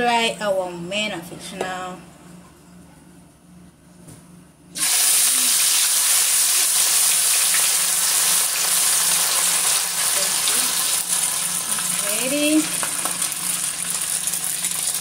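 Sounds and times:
fish sizzling in hot oil: 0:04.8 - 0:15.0.

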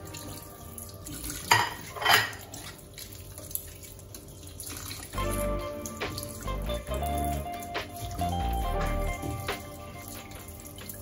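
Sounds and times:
water running in sink: 0:00.0 - 0:11.0
dishes and utensils clattering: 0:01.2 - 0:02.7.

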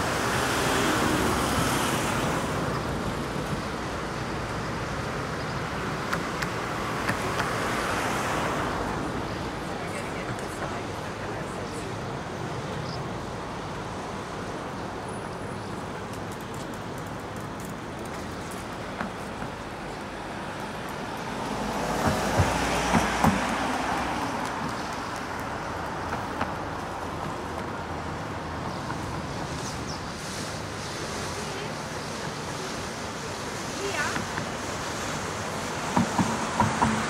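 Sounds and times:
passing cars hum: 0:00.0 - 0:37.0
vehicle knocks: 0:35.9 - 0:37.0.

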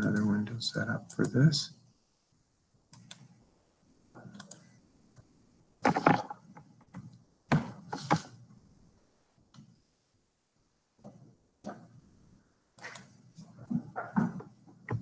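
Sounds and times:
keyboard and mouse clicks: 0:02.9 - 0:03.4, 0:04.2 - 0:04.7, 0:05.8 - 0:08.3, 0:12.8 - 0:13.2.

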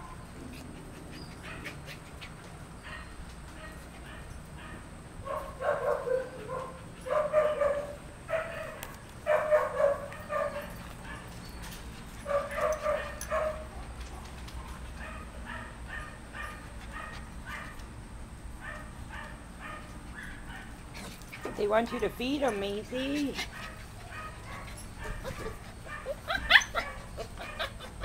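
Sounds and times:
puppies yipping and whining: 0:00.0 - 0:03.3, 0:23.2 - 0:28.0.

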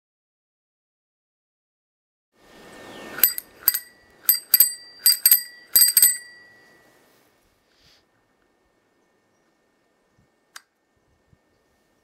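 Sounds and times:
bicycle bell ringing: 0:03.2 - 0:06.8.

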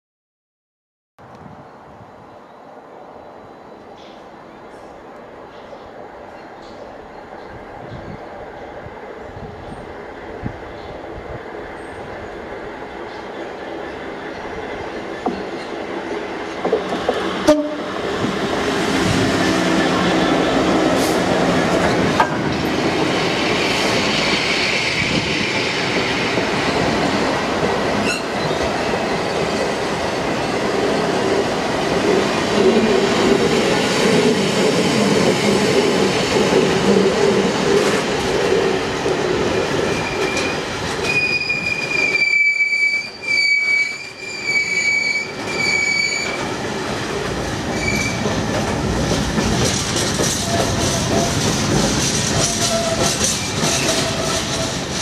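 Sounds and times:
freight wagons rolling on rails: 0:18.0 - 0:55.0
high wheel squeal: 0:28.0 - 0:29.7, 0:39.9 - 0:46.5, 0:47.7 - 0:48.3.

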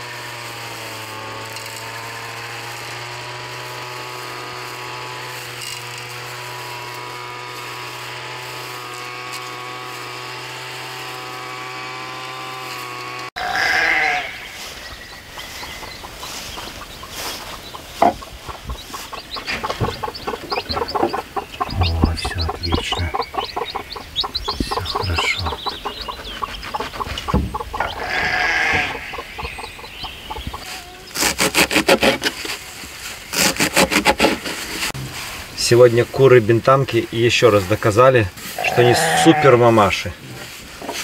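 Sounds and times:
chicks peeping: 0:03.2 - 0:34.2
hen clucking: 0:11.5 - 0:32.3, 0:37.4 - 0:41.0
knife chopping on wooden board: 0:18.0 - 0:18.3.

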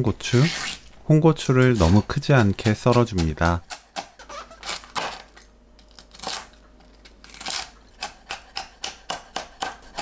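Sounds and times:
knife chopping on wooden board: 0:08.0 - 0:10.0.

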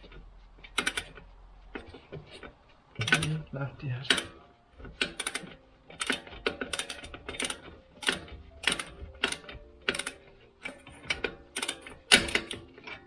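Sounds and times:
socket ratchet clicking: 0:00.7 - 0:01.3, 0:04.1 - 0:13.0.

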